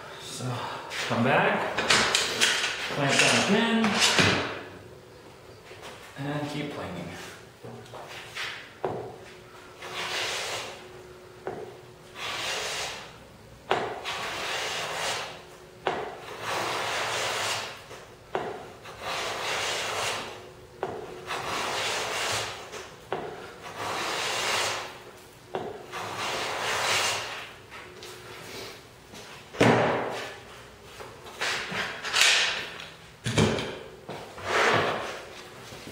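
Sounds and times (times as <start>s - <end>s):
hand plane shaving wood: 9.8s - 10.8s, 12.2s - 13.0s, 14.0s - 15.4s, 16.3s - 17.8s, 18.9s - 20.3s, 21.3s - 22.6s, 23.6s - 24.9s.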